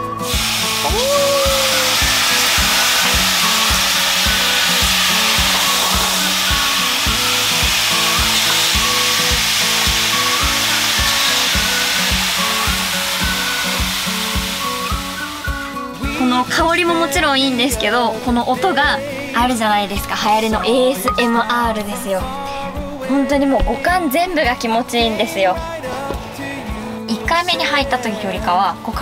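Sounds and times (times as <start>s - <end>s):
water hissing on hot stones: 0.0s - 21.6s
background music with a beat: 0.0s - 29.0s.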